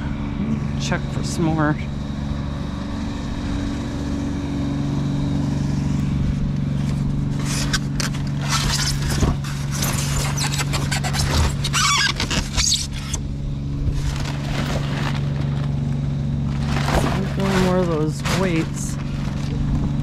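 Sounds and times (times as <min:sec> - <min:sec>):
junk scraping and clattering: 0:13.9 - 0:20.0.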